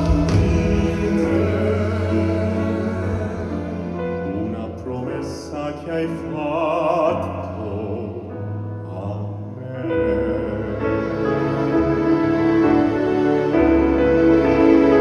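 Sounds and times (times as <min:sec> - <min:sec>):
men singing operatically: 0:00.0 - 0:11.5
orchestra playing: 0:00.0 - 0:15.0.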